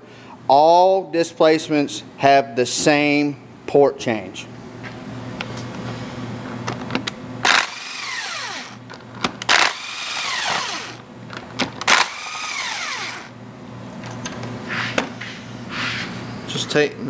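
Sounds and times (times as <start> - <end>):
cordless drill whining: 7.4 - 8.8, 9.5 - 11.0, 11.9 - 13.3.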